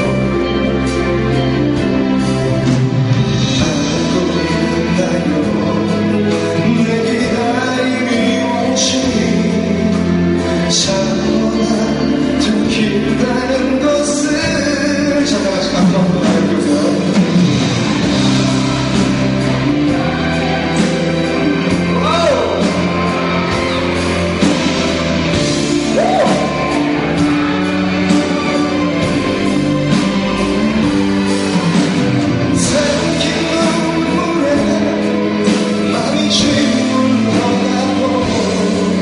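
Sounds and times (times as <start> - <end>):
band accompaniment: 0.0 - 39.0
man singing pop ballad: 3.3 - 17.6, 20.8 - 23.2, 32.3 - 39.0.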